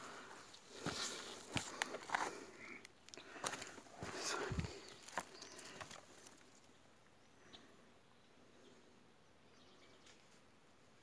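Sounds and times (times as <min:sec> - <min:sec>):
sharp crackles of twigs: 0:00.1 - 0:06.8.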